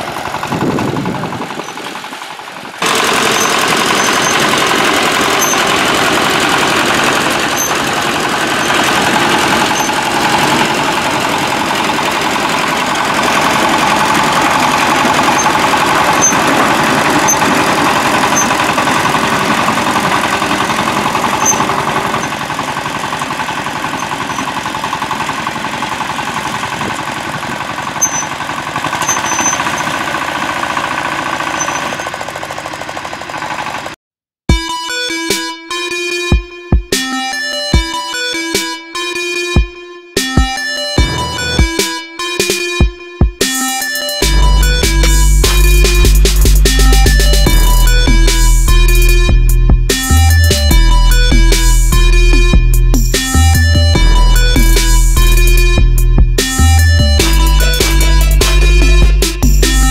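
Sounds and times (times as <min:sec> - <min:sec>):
rotary tiller churning soil: 0:00.0 - 0:34.0, 0:41.0 - 0:41.8
tractor engine running: 0:00.0 - 0:34.0, 0:40.9 - 0:59.9
sharp knock: 0:41.0 - 0:42.0.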